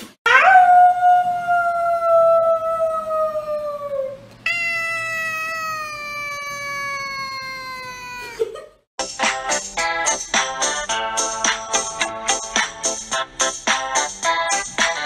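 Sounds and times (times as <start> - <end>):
cat meowing: 4.4 - 8.4.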